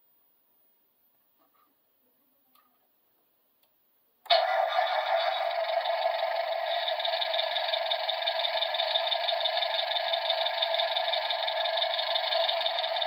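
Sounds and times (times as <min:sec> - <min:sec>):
electronic engine sound: 0:04.3 - 0:13.0.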